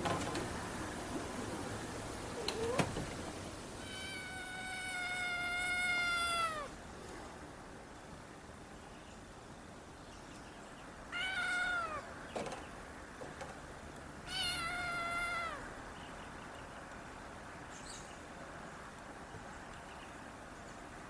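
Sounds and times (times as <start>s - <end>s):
cat meowing: 3.8s - 6.8s, 11.1s - 12.1s, 14.2s - 15.7s.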